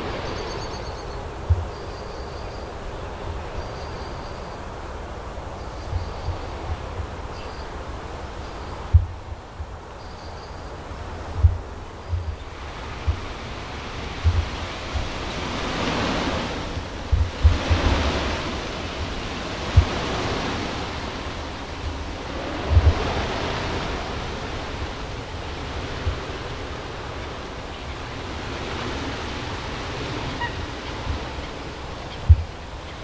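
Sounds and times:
wind buffeting microphone: 0:00.0 - 0:33.0
flock of birds' wings whooshing: 0:11.4 - 0:33.0.

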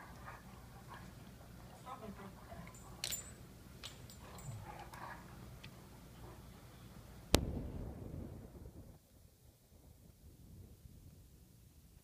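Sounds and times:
dogs mouthing and scuffling: 0:00.0 - 0:06.4.

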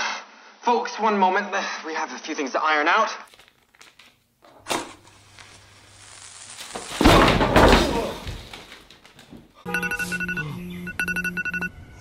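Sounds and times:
fuse fizzing: 0:04.9 - 0:07.2
electronic beeping tune: 0:09.7 - 0:11.8.

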